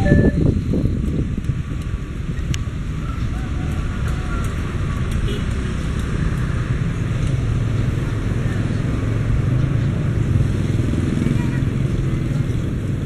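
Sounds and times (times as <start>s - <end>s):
freight train rumbling on track: 0.0s - 5.4s.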